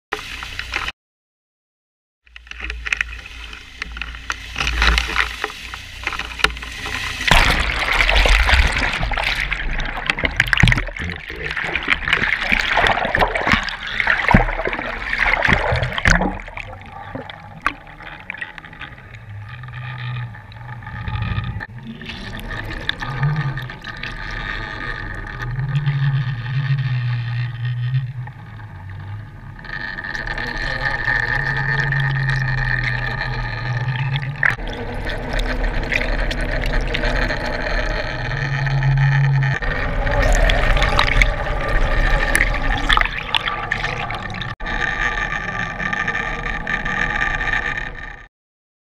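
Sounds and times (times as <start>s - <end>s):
boat engine hum underwater: 0.2s - 0.9s, 2.2s - 48.3s
water rushing and bubbling underwater: 2.3s - 48.3s
low drone: 2.4s - 48.3s.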